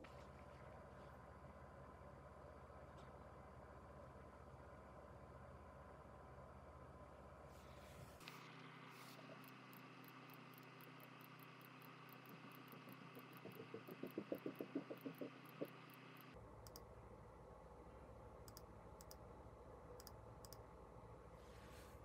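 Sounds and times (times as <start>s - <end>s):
soft clicks: 9.2s - 16.9s, 18.4s - 19.2s, 20.0s - 20.6s.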